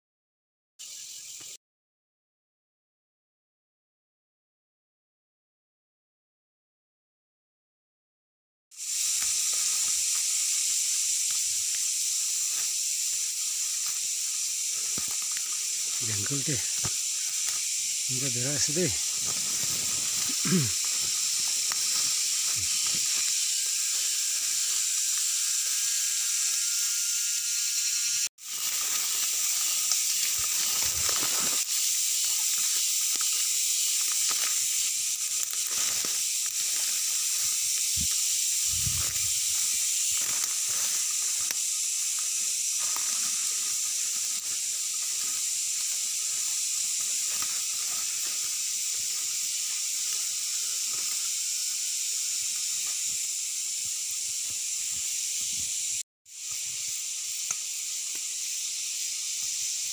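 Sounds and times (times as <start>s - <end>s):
shrill insect chorus: 0.8s - 1.6s, 8.7s - 59.9s
thumps and rustles in undergrowth: 19.0s - 23.3s, 28.5s - 31.7s, 35.3s - 41.6s.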